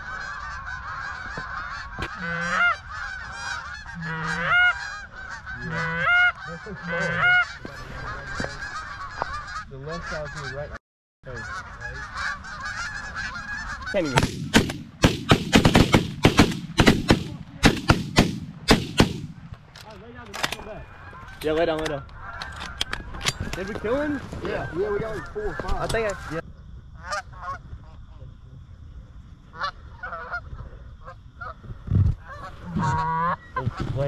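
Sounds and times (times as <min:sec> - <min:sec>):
geese honking: 0:00.0 - 0:17.8, 0:20.1 - 0:26.4, 0:27.0 - 0:28.1, 0:29.4 - 0:31.6, 0:32.2 - 0:34.0
shotgun blasts: 0:14.1 - 0:19.6.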